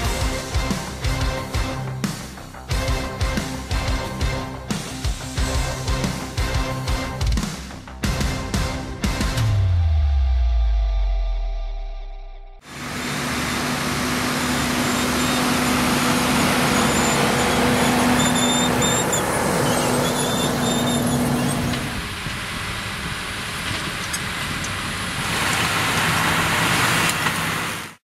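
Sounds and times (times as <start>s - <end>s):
tractor engine under load: 12.7s - 28.0s.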